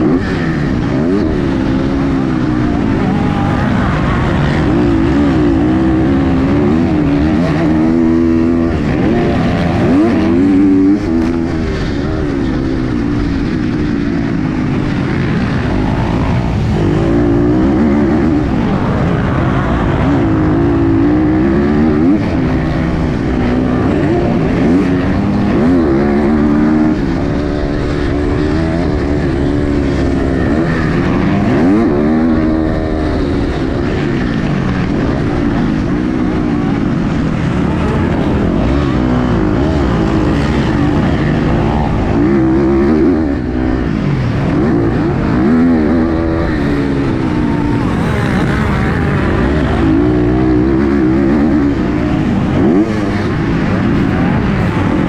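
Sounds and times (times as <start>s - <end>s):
motocross engine revving: 0.0s - 55.0s.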